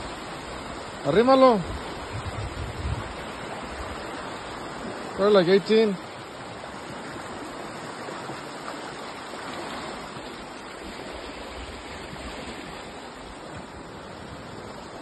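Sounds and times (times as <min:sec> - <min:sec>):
wind buffeting microphone: 0:01.5 - 0:05.0.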